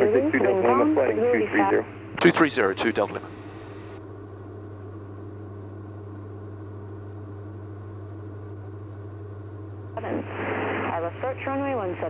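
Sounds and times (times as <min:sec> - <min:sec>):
propeller aircraft engines droning: 0:00.0 - 0:04.0.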